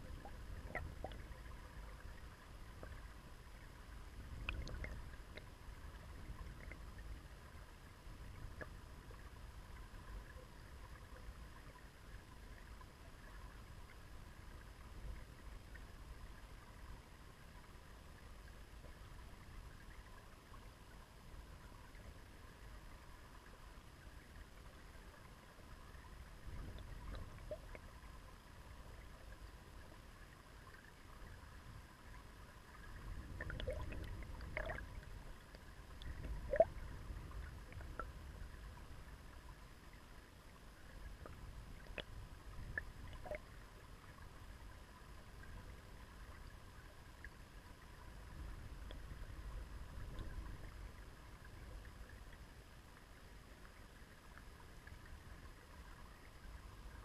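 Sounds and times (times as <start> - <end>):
small underwater clicks and pops: 0.0 - 3.3, 4.2 - 7.2, 8.3 - 16.0, 23.4 - 31.4, 32.1 - 38.7, 40.9 - 43.6, 48.4 - 55.2
underwater river current wash: 0.0 - 57.0.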